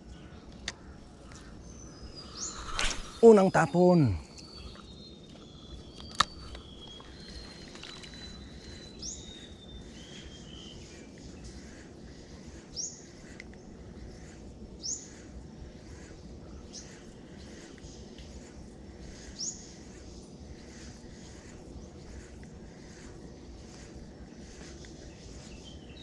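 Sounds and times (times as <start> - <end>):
bird chirping and whistling: 4.3 - 10.7.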